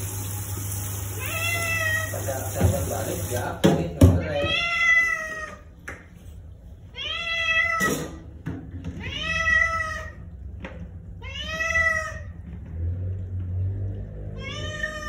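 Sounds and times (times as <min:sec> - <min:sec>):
cat meowing: 0:01.2 - 0:02.2, 0:04.2 - 0:05.7, 0:06.9 - 0:08.2, 0:09.0 - 0:10.3, 0:11.2 - 0:12.4, 0:14.4 - 0:15.0.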